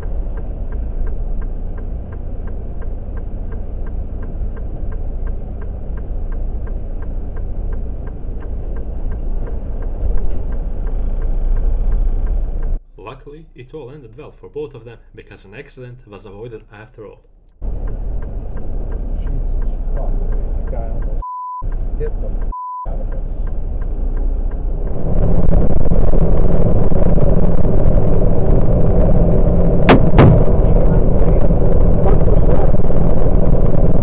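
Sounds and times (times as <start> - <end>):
truck cab noise: 0.0 - 34.0
truck road and engine noise: 0.0 - 34.0
high censor bleeps: 21.2 - 21.7, 22.5 - 22.9
sharp bangs on truck: 29.9 - 30.6.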